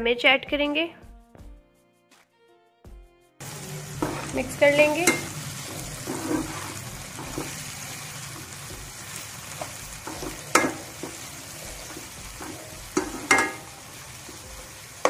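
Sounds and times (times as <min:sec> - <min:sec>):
vegetables sizzling in oil: 0:03.4 - 0:15.0
spatula scraping pan: 0:03.5 - 0:15.0.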